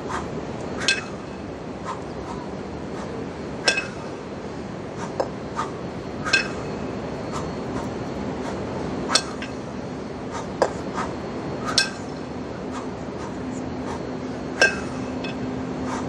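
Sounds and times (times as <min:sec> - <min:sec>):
low hum: 0:00.0 - 0:16.0
kettlebells knocking with metallic ring: 0:14.6 - 0:15.4.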